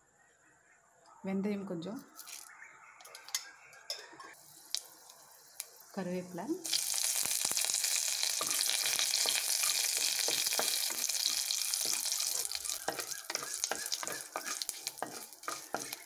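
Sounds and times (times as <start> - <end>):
spices sizzling in hot oil: 2.2 - 2.5, 4.4 - 16.0
wooden spatula scraping pan: 9.2 - 16.0.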